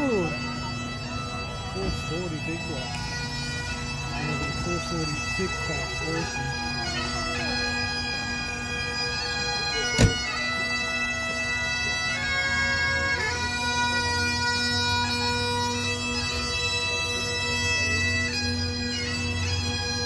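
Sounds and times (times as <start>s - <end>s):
bagpipes playing a tune: 0.0s - 20.0s.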